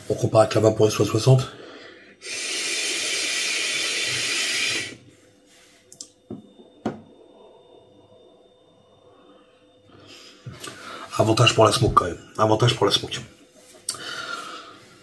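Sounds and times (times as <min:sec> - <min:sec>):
breath-out of vapour: 0:01.6 - 0:05.8
vape hiss: 0:02.2 - 0:05.0.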